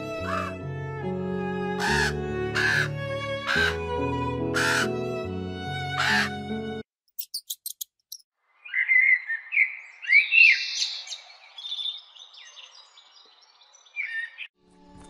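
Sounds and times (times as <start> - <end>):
songbird singing: 7.2 - 14.6.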